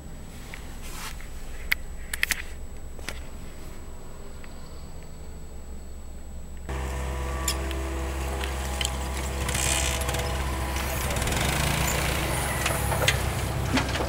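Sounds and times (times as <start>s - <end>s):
diesel engine running: 0.0s - 14.0s
sharp knocks and clanks: 6.8s - 14.0s.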